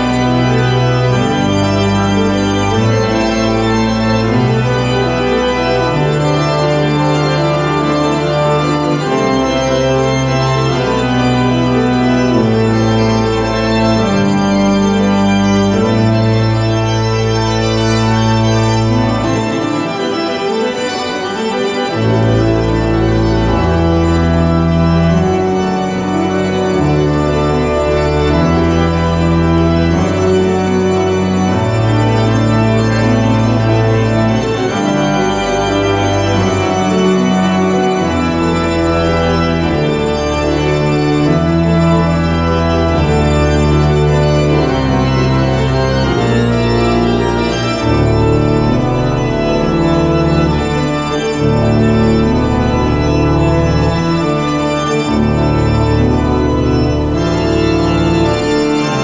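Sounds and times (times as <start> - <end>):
pipe organ chords: 0.0 - 59.0.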